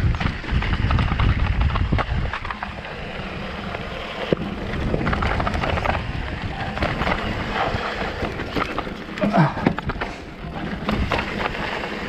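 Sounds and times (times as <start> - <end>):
wind on microphone: 0.0 - 8.8
bike frame rattling: 0.0 - 12.0
tyres crunching over gravel: 0.0 - 12.0.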